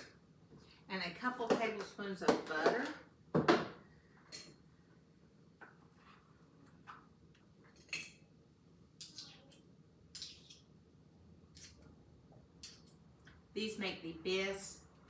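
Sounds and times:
metal spoon clinking: 10.1 - 10.6.

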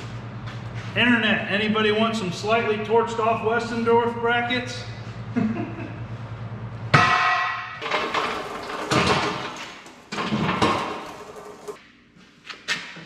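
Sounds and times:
pallet jack clanking and rattling: 7.8 - 11.8.

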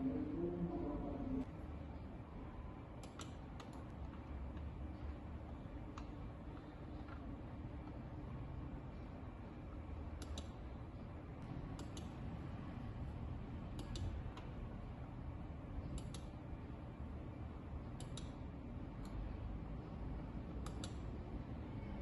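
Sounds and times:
low background hum: 0.0 - 22.0
computer mouse clicking: 3.0 - 4.7, 10.2 - 10.6, 11.7 - 12.1, 13.7 - 14.5, 15.9 - 16.3, 18.0 - 18.4, 20.6 - 21.0.

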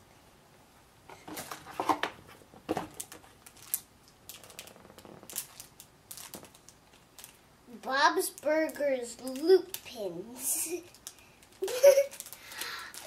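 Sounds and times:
packaging rustling: 1.2 - 7.4, 10.6 - 13.0.

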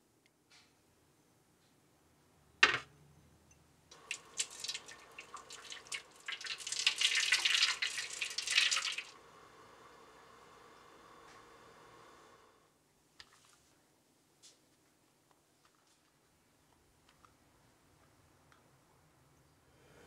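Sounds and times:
water pouring and splashing: 3.9 - 9.2.

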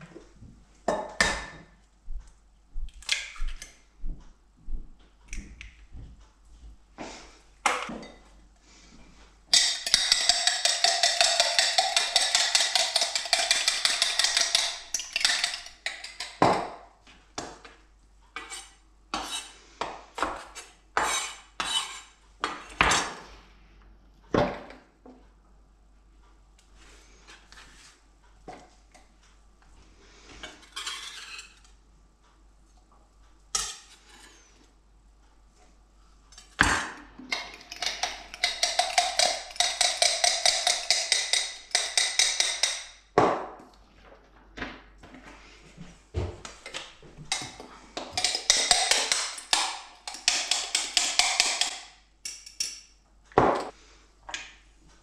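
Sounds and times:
utensil clinking against glass: 9.6 - 16.4.

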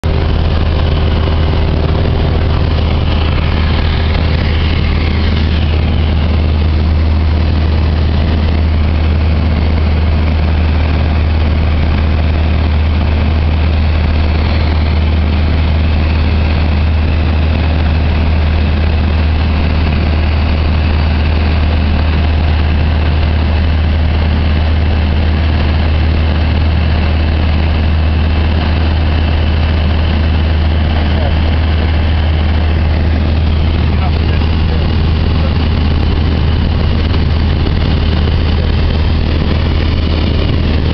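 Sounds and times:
light aircraft engine droning: 0.0 - 40.9.

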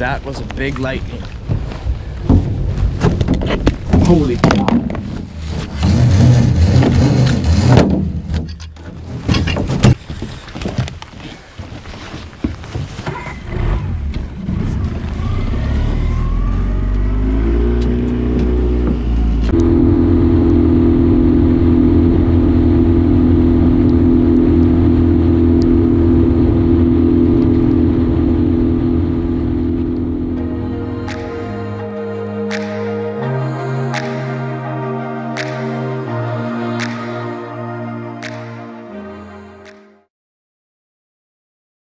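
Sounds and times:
outboard motor running: 17.6 - 31.2.

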